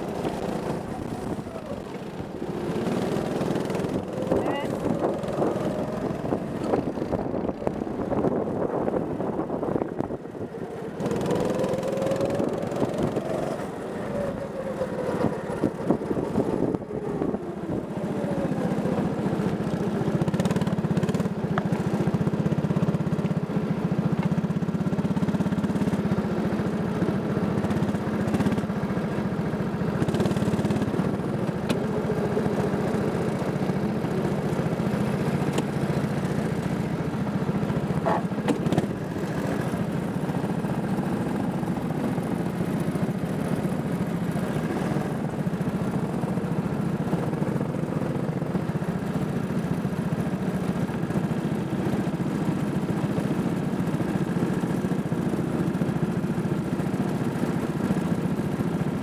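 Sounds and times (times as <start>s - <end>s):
go-kart engine revving: 0.0s - 59.0s.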